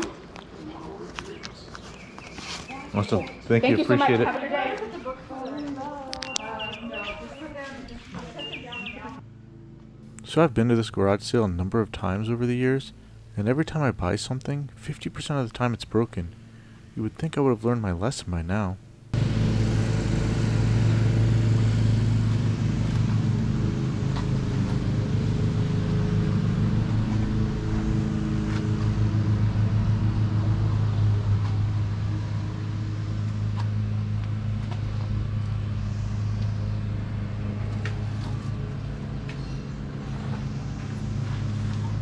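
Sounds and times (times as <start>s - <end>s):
car engine and road hum: 0.0s - 18.0s, 18.7s - 42.0s.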